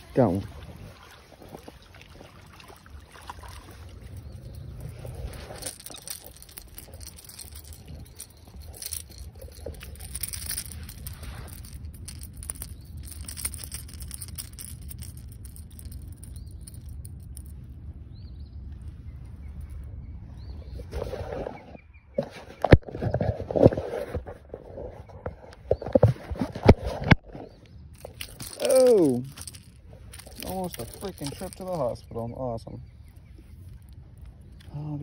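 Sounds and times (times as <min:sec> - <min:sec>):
low steady rumble: 0:00.0 - 0:20.8
rustling and clicks of handling: 0:04.1 - 0:17.6, 0:22.2 - 0:34.8.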